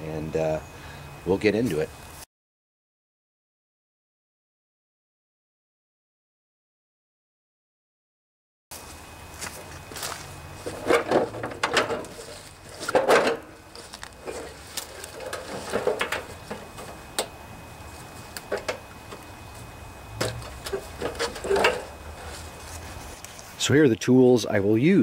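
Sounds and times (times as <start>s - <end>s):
knocks and thumps: 10.6s - 17.3s, 20.2s - 22.0s.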